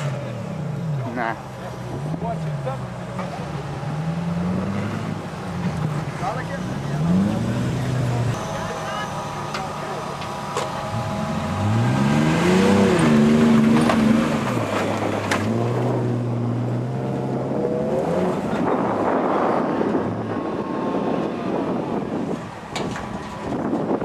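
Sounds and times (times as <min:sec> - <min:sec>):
engine revving hard: 0:06.5 - 0:08.4, 0:10.8 - 0:22.2.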